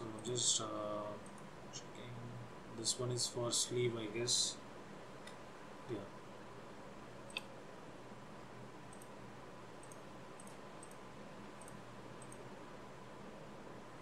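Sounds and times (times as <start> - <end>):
faint steady hum and hiss: 0.0 - 14.0
computer mouse clicking: 8.9 - 9.1, 9.8 - 11.0, 11.6 - 12.5.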